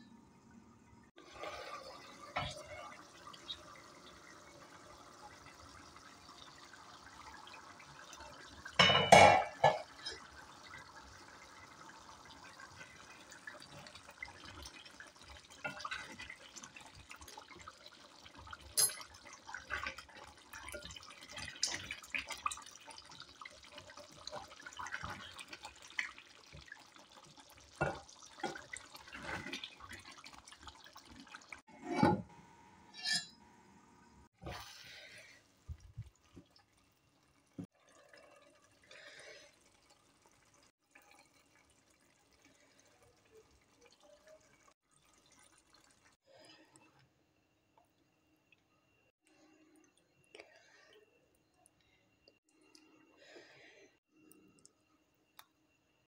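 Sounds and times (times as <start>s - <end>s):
metal pot lid clanking: 8.8s - 10.1s.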